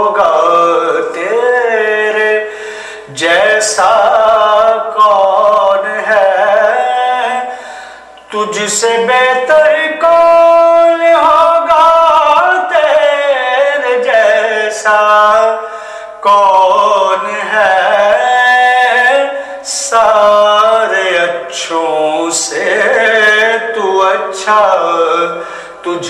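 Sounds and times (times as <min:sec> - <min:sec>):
man singing solo: 0:00.0 - 0:07.6, 0:08.2 - 0:26.0
singer breathing: 0:02.4 - 0:03.1, 0:07.4 - 0:08.3, 0:15.6 - 0:16.2, 0:19.3 - 0:19.7, 0:25.3 - 0:25.9.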